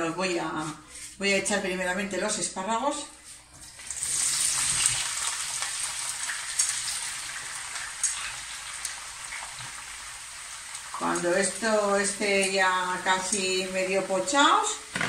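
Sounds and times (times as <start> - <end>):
vegetables sizzling in oil: 3.7 - 15.0.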